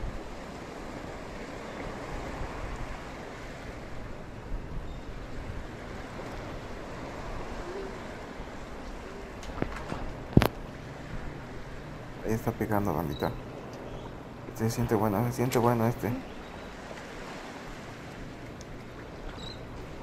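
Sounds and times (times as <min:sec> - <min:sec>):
waves rushing: 0:00.0 - 0:20.0
wind: 0:00.0 - 0:20.0.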